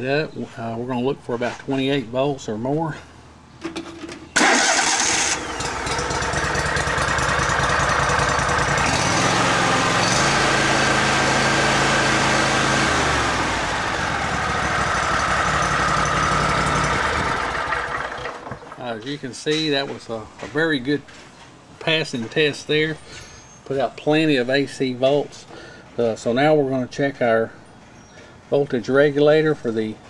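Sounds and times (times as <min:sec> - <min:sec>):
small engine running: 0:04.4 - 0:18.7
electric starter cranking: 0:04.4 - 0:18.8.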